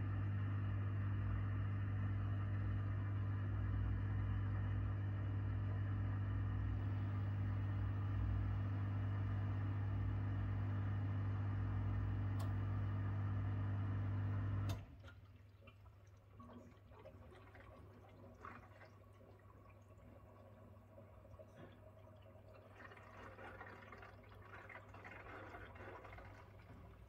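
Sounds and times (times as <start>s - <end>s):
dishwasher pump humming: 0.0s - 27.0s
water trickling and dripping: 14.8s - 27.0s.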